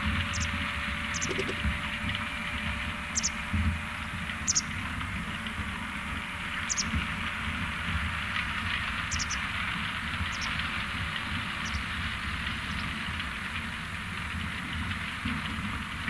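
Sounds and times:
distant machine rumble: 0.0 - 16.0
steady rushing noise: 1.1 - 1.8
short high chirps: 1.2 - 1.6.

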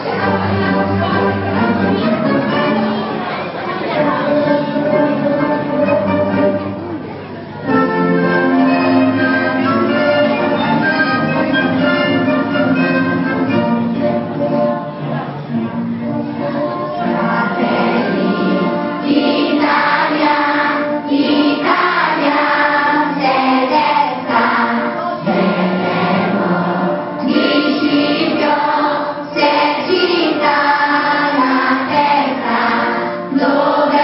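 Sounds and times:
children singing: 0.0 - 6.6, 16.1 - 34.0.

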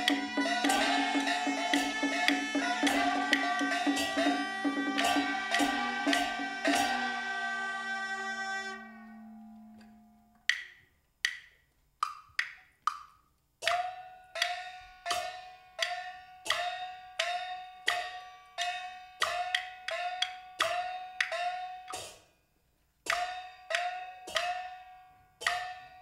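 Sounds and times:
steady struck percussion beat: 0.0 - 8.5, 13.6 - 22.3, 23.1 - 26.0.

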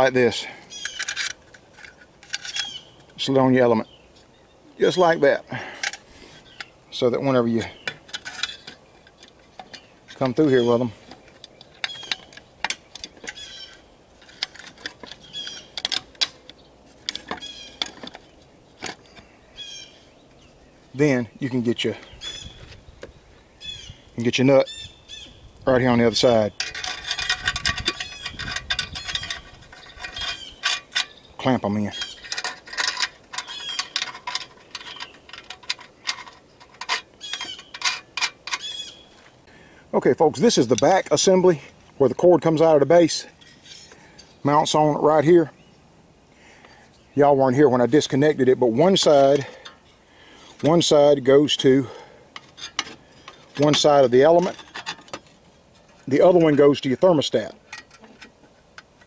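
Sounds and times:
bird chirping: 0.0 - 1.4, 2.3 - 42.6, 43.3 - 52.2
metal parts clicking and tapping: 0.7 - 3.2, 7.7 - 19.3, 26.0 - 38.8, 48.8 - 50.0, 50.6 - 59.0
small metallic clicks and clinks: 26.4 - 31.2, 31.8 - 38.8.

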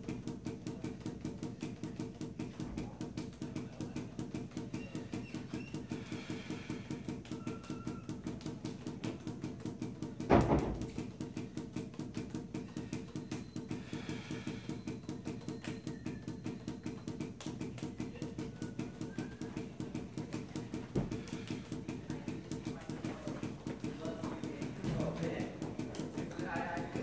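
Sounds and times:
balls bouncing on tiled floor: 0.0 - 27.0
loud thump: 10.3 - 10.9.

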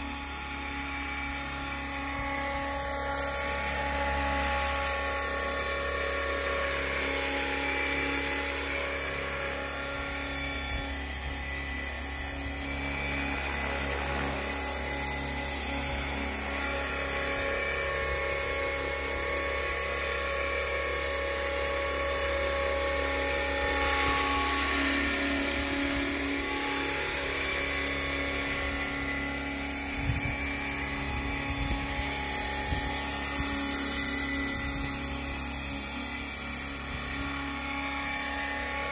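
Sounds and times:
model helicopter motor whining: 0.0 - 38.9
rotor blades whirring: 0.0 - 38.9.

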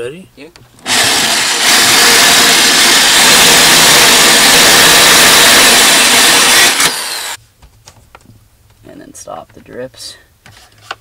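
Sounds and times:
electric drill boring metal: 0.8 - 7.4.

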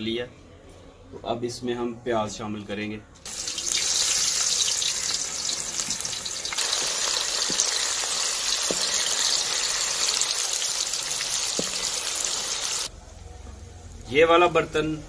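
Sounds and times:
onions sizzling in hot oil: 3.3 - 12.9
wooden spatula stirring: 5.8 - 12.7.

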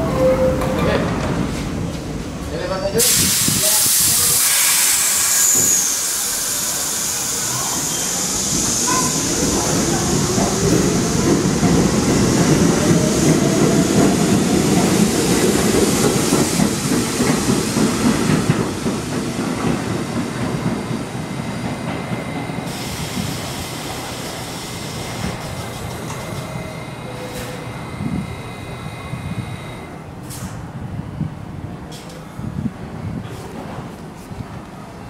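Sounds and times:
subway trains rumbling: 0.0 - 35.0.

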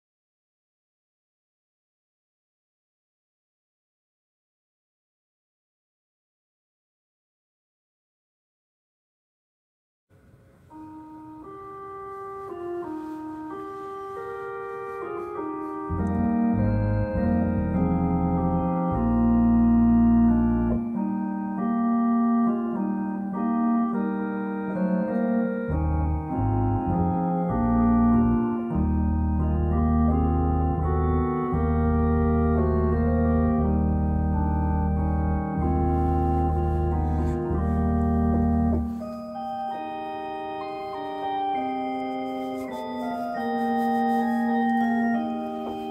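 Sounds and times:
electronic organ held chords: 10.2 - 45.9
deep bass organ notes: 10.7 - 45.9.

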